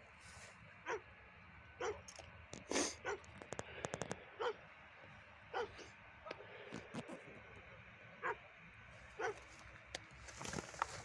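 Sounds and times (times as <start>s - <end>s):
dog yelping: 0.9s - 1.1s, 1.8s - 2.1s, 4.4s - 4.6s, 5.5s - 5.9s, 8.2s - 8.4s, 9.2s - 9.5s.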